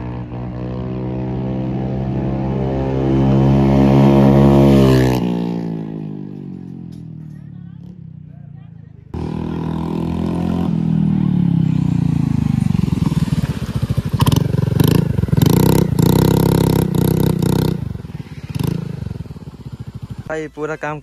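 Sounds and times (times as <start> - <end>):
scooter engine revving: 9.1 - 21.0.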